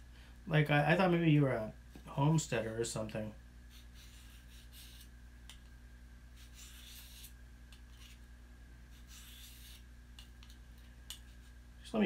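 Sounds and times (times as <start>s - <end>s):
low steady hum: 0.0s - 12.0s
knife blade scraping strokes: 3.7s - 5.6s, 6.4s - 8.3s, 8.9s - 11.6s.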